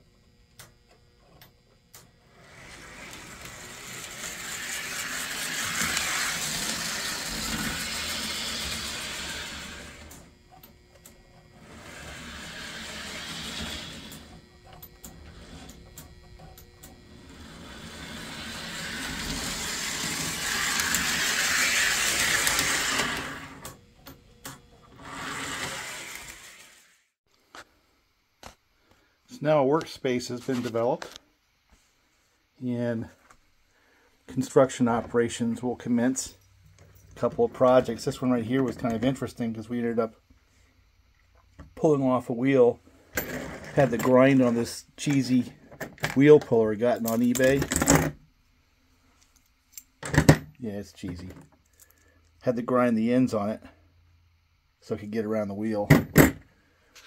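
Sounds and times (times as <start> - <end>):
small electric motor whirring: 2.0 - 23.9, 24.7 - 27.2.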